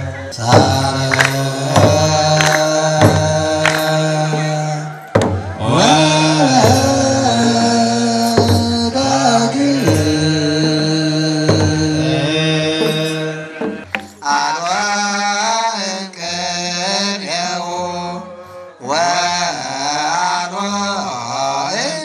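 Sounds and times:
men chanting in unison: 0.0s - 22.0s
hand drum: 8.3s - 9.0s, 9.8s - 10.4s, 11.5s - 12.1s.

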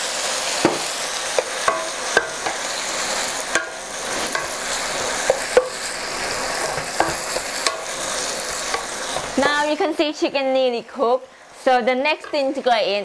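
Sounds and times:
food sizzling in a wok: 0.0s - 12.8s
spatula knocking against pan: 1.4s - 2.7s.

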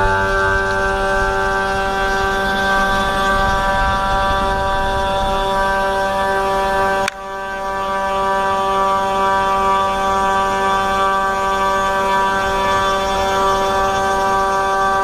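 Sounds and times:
cnc router spindle whine: 0.0s - 15.0s.

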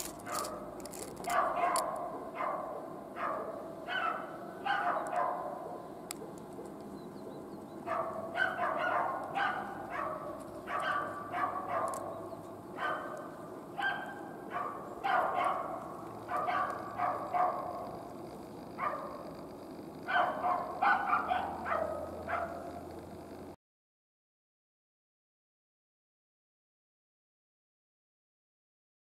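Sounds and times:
dog barking: 0.2s - 0.6s, 1.3s - 6.3s, 7.8s - 18.0s, 18.8s - 19.3s, 20.0s - 22.9s.

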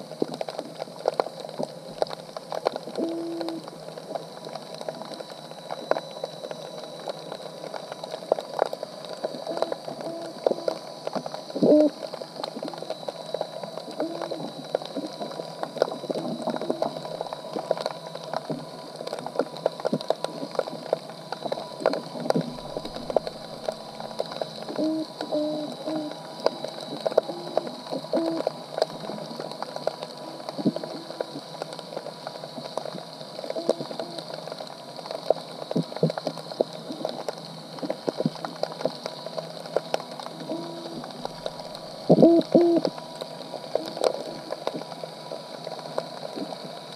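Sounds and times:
clicks and crackles: 0.0s - 46.9s
faint steady high tone: 24.6s - 28.5s.

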